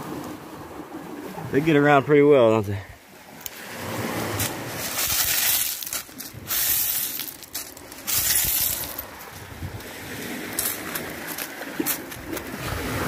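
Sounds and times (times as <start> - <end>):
shells and rubble crunching underfoot: 4.4 - 12.5.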